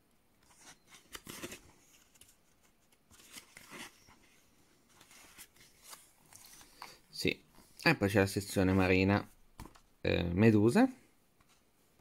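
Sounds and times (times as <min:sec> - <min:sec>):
book pages rustling: 0:00.4 - 0:07.0.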